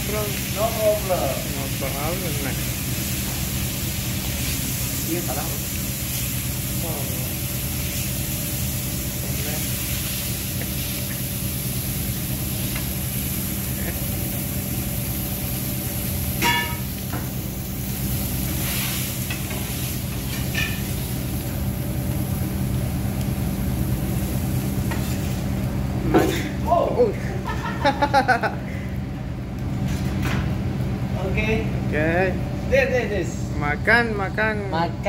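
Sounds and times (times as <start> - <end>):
steak sizzling on griddle: 0.0 - 26.1
exhaust hood fan hum: 0.0 - 35.0.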